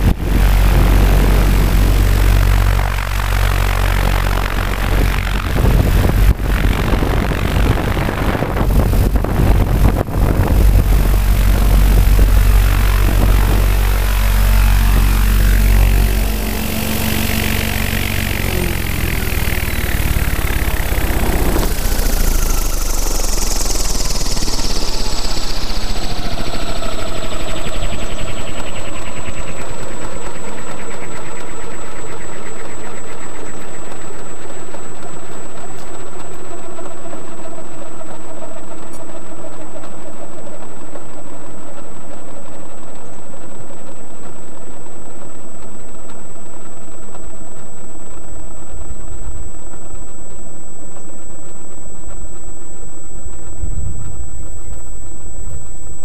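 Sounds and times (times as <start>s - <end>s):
helicopter whine falling in pitch: 0.0s - 56.0s
loud steady rumble and rattle: 0.0s - 56.0s.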